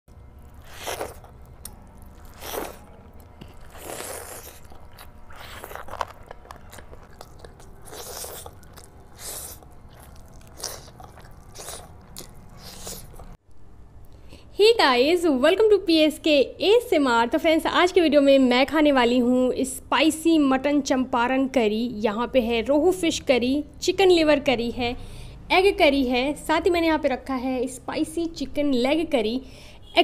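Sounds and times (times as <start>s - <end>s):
person chewing food: 0.2s - 13.4s.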